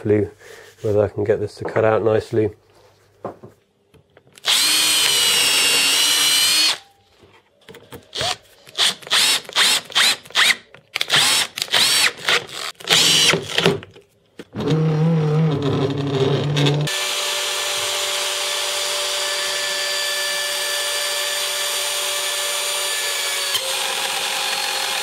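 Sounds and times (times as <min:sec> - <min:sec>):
drill driving a screw in bursts: 0:04.4 - 0:06.8, 0:08.2 - 0:13.6
power drill drilling into wood: 0:04.4 - 0:06.8, 0:08.2 - 0:13.4, 0:16.8 - 0:25.0.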